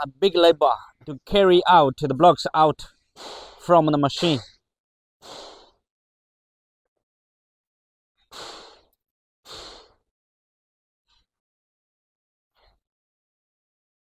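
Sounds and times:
person breathing close to microphone: 3.1s - 3.6s, 5.2s - 5.8s, 8.3s - 10.0s.

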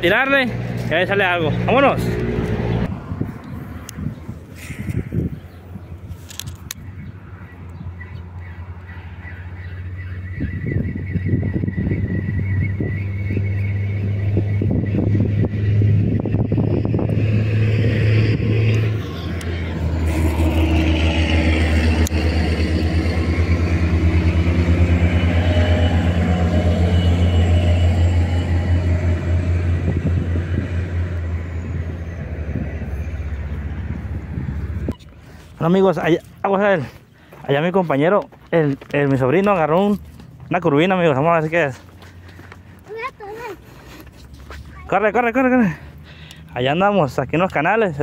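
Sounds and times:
motor engine humming: 9.8s - 35.6s.

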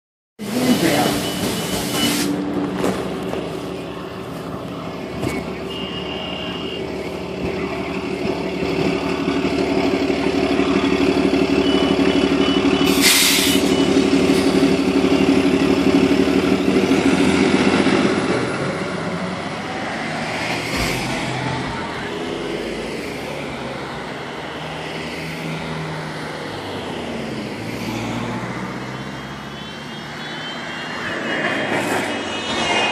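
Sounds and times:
high beep: 0.4s - 2.4s, 5.0s - 7.2s, 10.6s - 15.5s, 29.1s - 31.2s
bus engine drone: 0.4s - 32.9s
air brake hiss: 1.4s - 2.4s, 12.9s - 13.7s.

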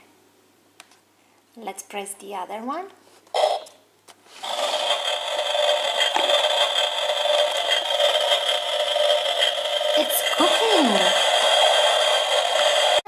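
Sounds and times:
toy stove electronic hiss: 3.4s - 13.0s.

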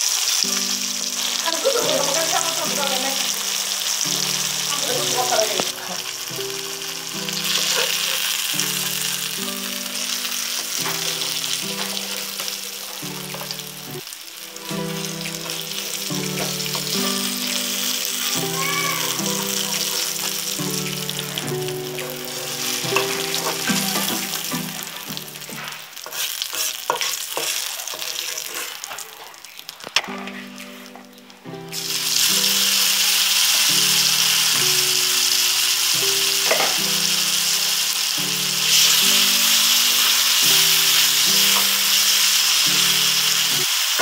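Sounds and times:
fish sizzling in hot oil: 0.0s - 44.0s
background music: 0.3s - 25.8s, 30.1s - 44.0s
spatula scraping a wok: 7.4s - 9.1s, 21.9s - 29.3s.

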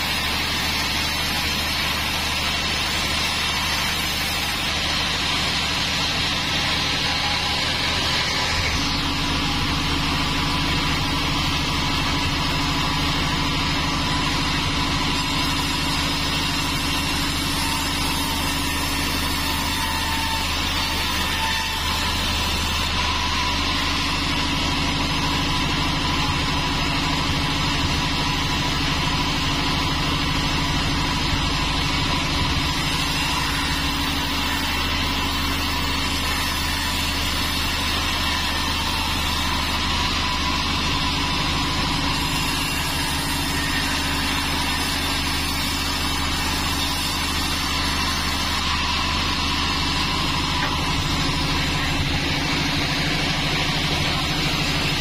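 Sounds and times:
band sawmill sawing logs: 0.0s - 55.0s.

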